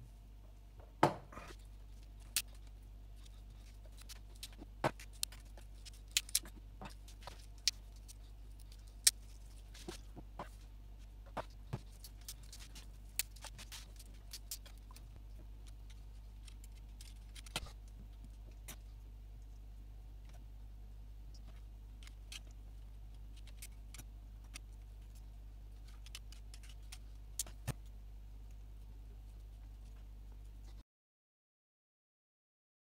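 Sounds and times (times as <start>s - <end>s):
steady low hum: 0.0s - 30.8s
clicks and taps of small parts: 4.0s - 9.2s.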